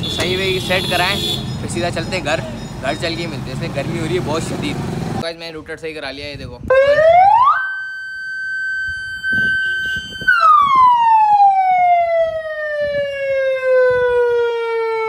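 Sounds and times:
electronic siren wailing: 6.7 - 15.0.

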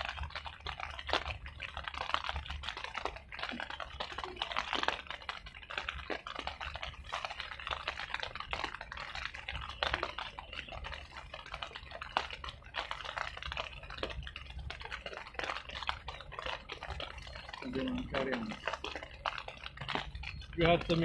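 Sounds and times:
irregular clicking and crackling: 0.0 - 21.0
wind rumbling on microphone: 0.0 - 21.0.

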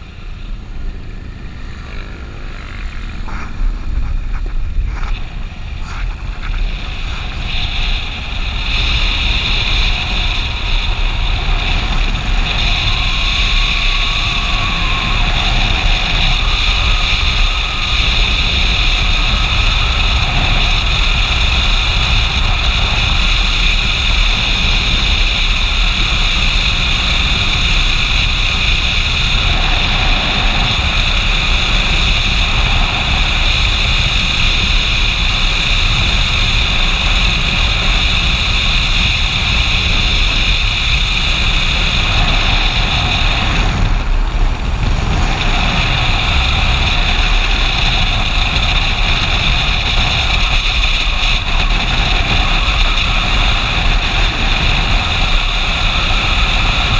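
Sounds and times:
motorcycle engine running: 0.0 - 56.9
wind rush: 0.0 - 56.9.

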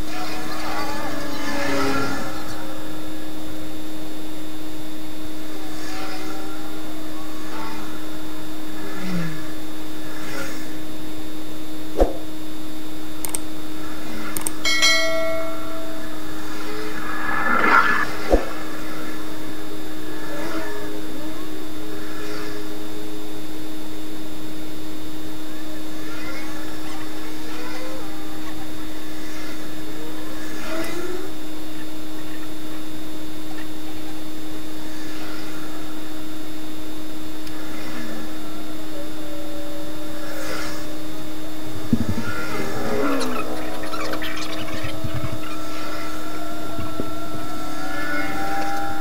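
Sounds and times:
steady hum and hiss: 0.0 - 49.0
notification bell ding: 14.7 - 15.9.

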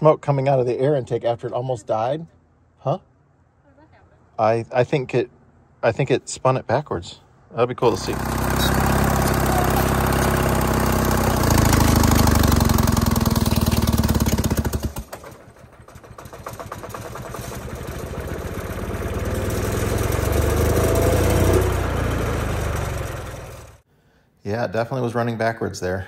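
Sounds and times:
diesel engine running: 7.8 - 23.8
engine whine: 7.8 - 23.8.

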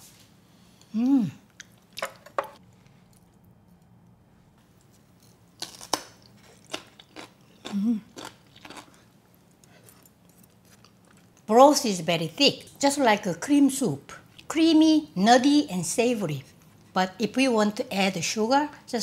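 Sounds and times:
person humming mm: 0.9 - 1.4, 7.6 - 8.1
crunchy chewing: 4.8 - 11.5.

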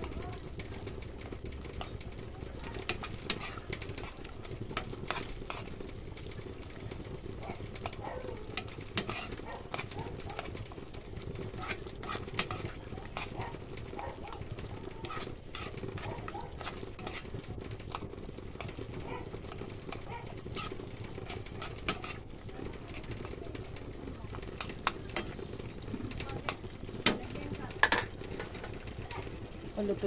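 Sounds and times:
spoon stirring thick sauce: 0.0 - 29.8
sauce sizzling: 0.0 - 30.0
spoon tapping against pan: 12.1 - 13.4, 24.4 - 25.4, 26.2 - 28.8.

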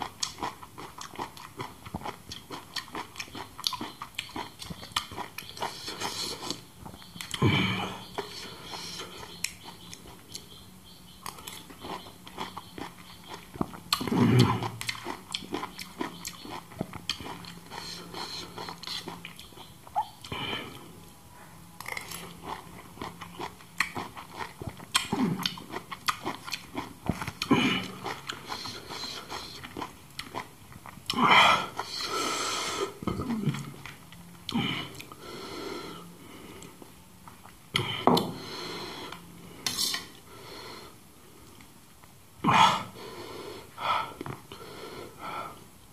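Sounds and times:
person chewing: 0.0 - 21.0, 21.8 - 35.2.

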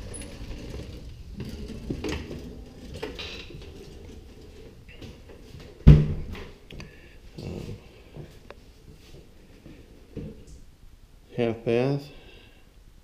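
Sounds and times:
loud thump: 5.8 - 6.4.

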